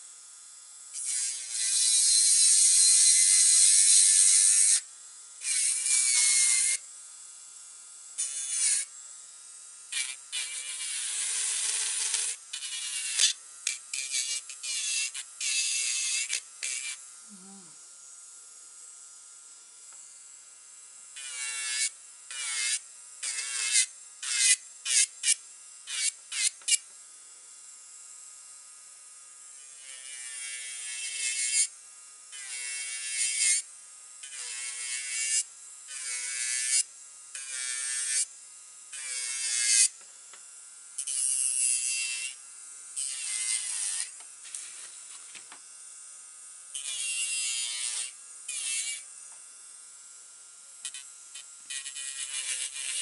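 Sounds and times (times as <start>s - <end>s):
electric nail drill whine: 0.0s - 53.0s
drill bit grinding nail: 0.9s - 6.9s, 8.2s - 9.0s, 9.9s - 17.1s, 21.1s - 26.9s, 29.5s - 40.1s, 41.0s - 45.6s, 46.7s - 49.4s, 50.8s - 53.0s.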